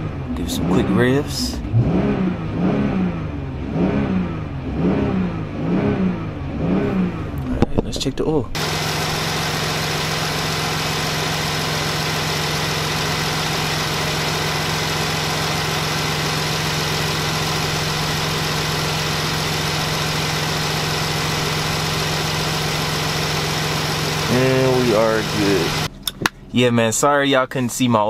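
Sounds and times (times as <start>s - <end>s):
car engine idling: 6.3s - 26.5s.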